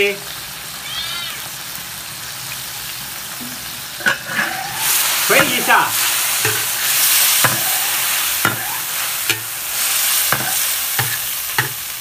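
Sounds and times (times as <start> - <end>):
sauce bubbling and sizzling: 0.0 - 12.0
ladle scraping a wok: 4.0 - 11.9.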